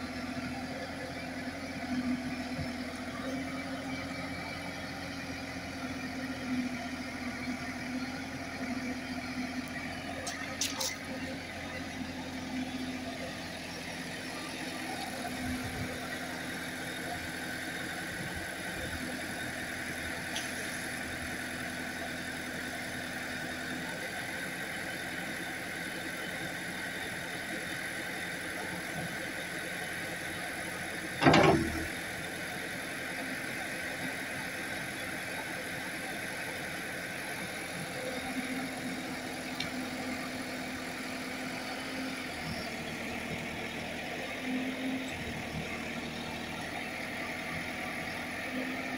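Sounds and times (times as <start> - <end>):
diesel engine running: 0.0 - 48.9
loud metallic clunk: 31.2 - 31.9.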